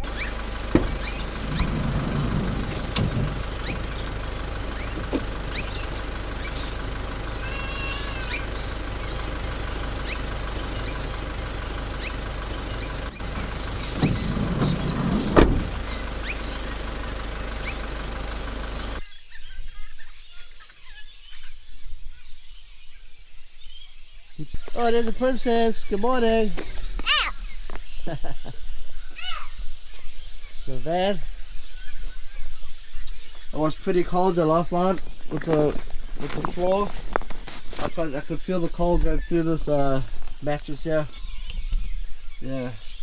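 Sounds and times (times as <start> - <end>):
low bumps: 0.0 - 7.5, 8.4 - 19.0
van engine idling: 0.0 - 19.0, 33.1 - 43.0
faint outdoor sound: 0.0 - 43.0.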